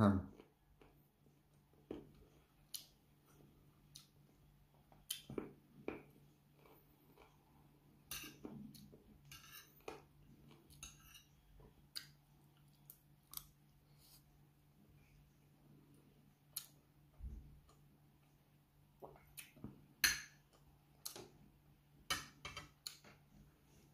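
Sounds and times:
quiet chewing: 0.3 - 7.8, 8.4 - 19.8
cutlery clinking on a plate: 8.1 - 8.5, 9.2 - 10.0.

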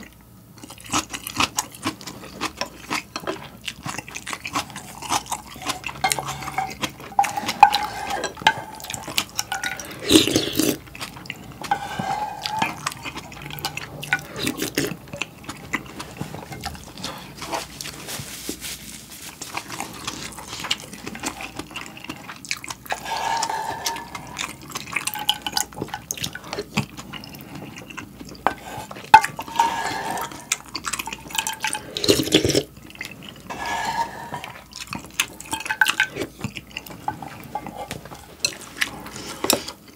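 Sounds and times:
slurping noodles: 4.3 - 18.0, 19.5 - 25.6, 28.5 - 39.9.

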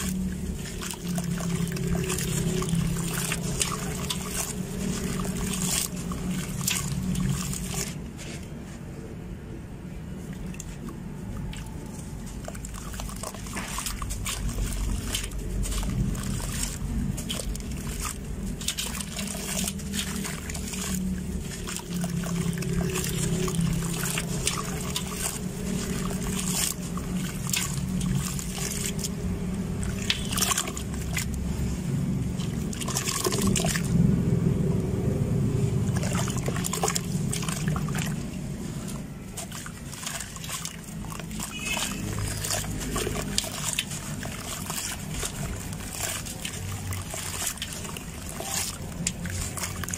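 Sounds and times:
water sloshing and splashing: 0.0 - 49.9
sand-cement ball crunching: 35.8 - 49.9.

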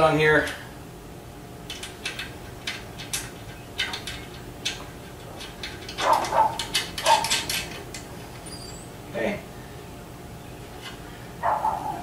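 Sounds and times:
metal hardware clicking: 1.7 - 8.6.

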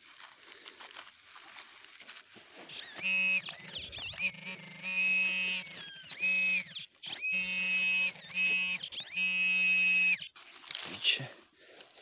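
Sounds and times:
metal detector signal tones: 2.7 - 10.4.

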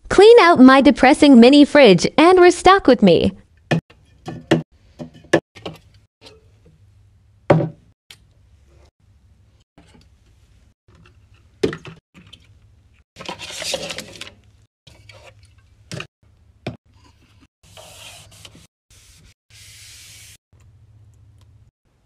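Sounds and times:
items knocking on plastic shelves: 7.5 - 7.9.

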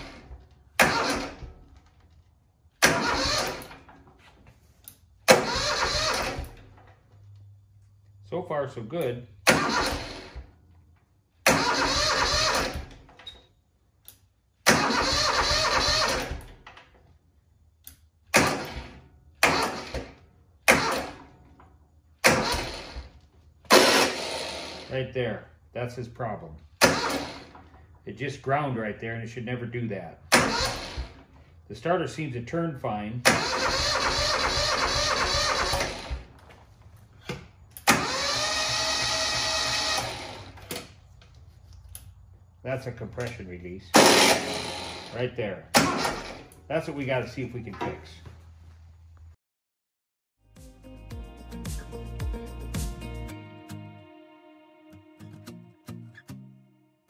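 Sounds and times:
starter motor cranking engine: 0.0 - 1.7, 2.8 - 4.0, 5.3 - 6.8, 9.4 - 10.5, 11.4 - 13.1, 14.6 - 16.6, 18.4 - 21.3, 22.2 - 25.0, 26.8 - 27.9, 30.3 - 31.4, 33.2 - 36.4, 37.8 - 40.9, 43.9 - 46.6.

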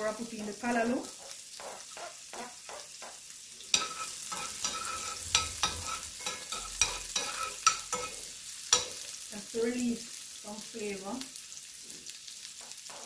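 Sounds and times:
onion and garlic sizzling in oil: 0.0 - 13.0
utensil scraping pan: 3.7 - 9.1.

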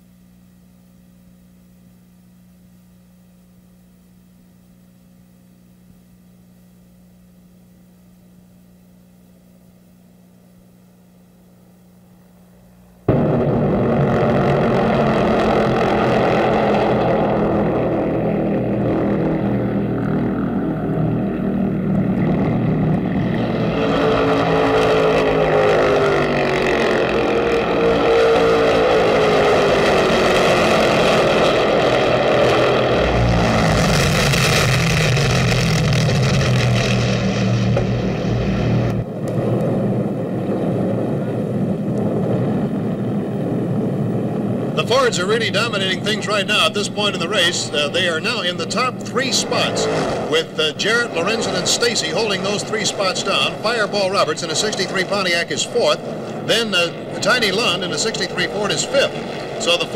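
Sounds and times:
race car engines passing: 14.1 - 39.1, 45.0 - 59.9.

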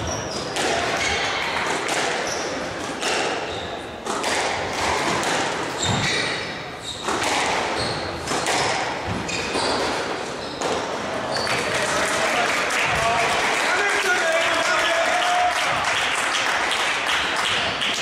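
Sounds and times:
shoe squeaks on court floor: 0.0 - 1.2, 2.2 - 2.6, 3.4 - 3.9, 5.7 - 11.7
squash ball smacking: 0.4 - 2.2, 2.8 - 11.0.

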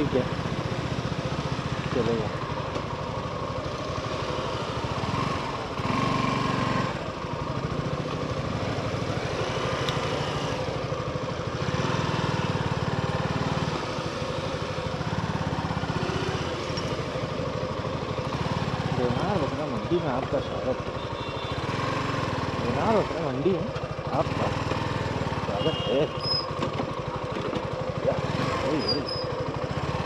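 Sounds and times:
heavy motorcycle engine running: 0.0 - 30.0.

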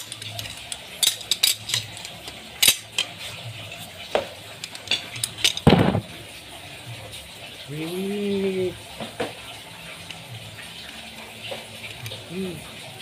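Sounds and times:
metal strips clinking: 0.0 - 3.9, 4.5 - 6.0.

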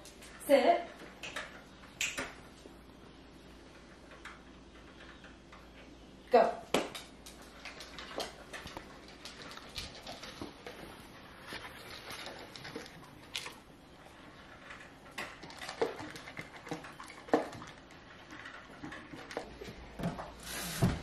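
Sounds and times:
kibble clicking against bowls: 0.0 - 2.4, 6.7 - 13.7, 14.3 - 20.3.

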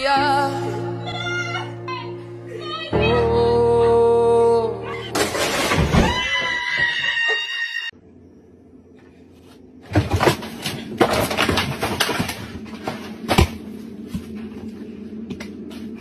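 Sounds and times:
freezer door banging open: 5.1 - 6.7
knocks and crash of falling: 5.1 - 7.2, 9.8 - 14.3.

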